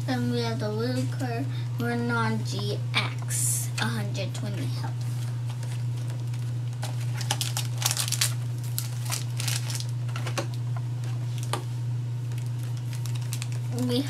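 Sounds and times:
steady low hum: 0.0s - 14.0s
foil packs crinkling: 5.0s - 11.6s, 12.2s - 14.0s
plastic blister tray crackling: 5.0s - 11.6s, 12.2s - 14.0s.

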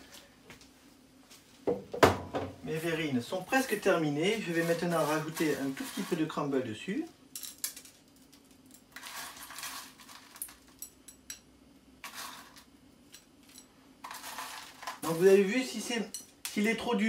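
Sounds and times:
crumble rustling scrapes: 4.2s - 6.4s, 14.0s - 15.4s.

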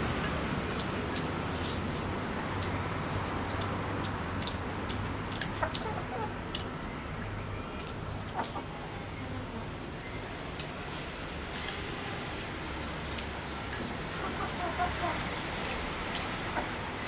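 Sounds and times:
chopsticks clicking on bowls: 2.4s - 6.7s
chickens clucking: 5.4s - 6.4s, 7.8s - 9.6s, 14.1s - 17.0s.

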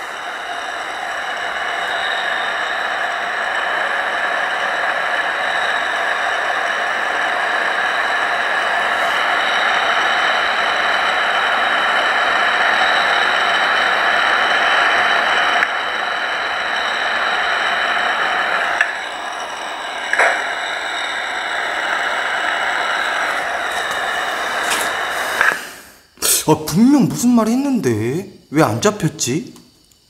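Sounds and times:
electronic hiss: 0.0s - 30.0s
thin high whining tones: 0.0s - 30.0s.

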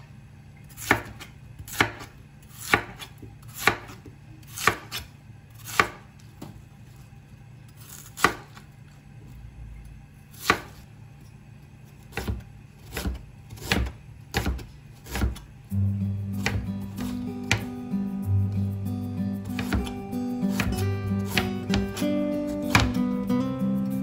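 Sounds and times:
knife chopping on plastic board: 0.8s - 6.1s, 8.0s - 8.6s, 12.1s - 15.5s, 16.4s - 17.7s, 19.5s - 23.0s.

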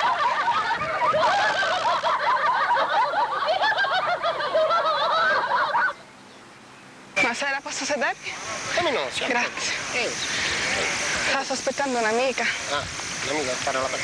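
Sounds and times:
crowd laughing: 0.0s - 6.0s.

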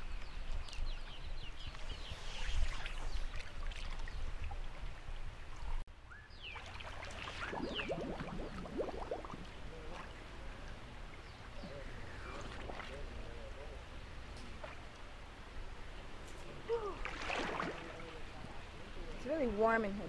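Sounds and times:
water sloshing and splashing: 2.5s - 5.8s, 6.5s - 10.4s, 16.8s - 18.7s.

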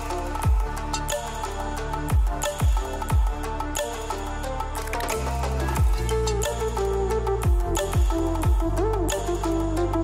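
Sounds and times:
deep kick drum: 5.8s - 6.1s, 7.5s - 8.7s.

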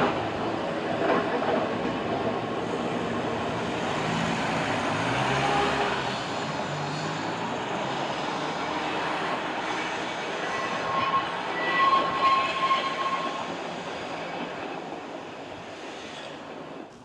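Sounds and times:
tram wheels and motor rumbling: 0.0s - 17.0s
road vehicle engine hum: 3.0s - 9.7s.

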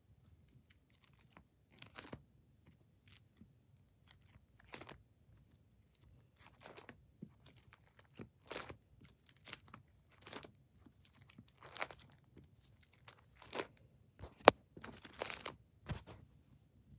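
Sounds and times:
plastic binder pages crinkling: 0.3s - 16.2s.

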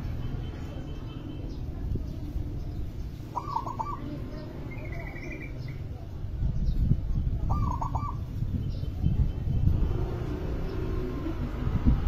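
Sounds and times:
higher bird trill: 3.2s - 5.9s, 7.5s - 8.9s
dove cooing: 3.3s - 4.2s, 7.5s - 8.3s.

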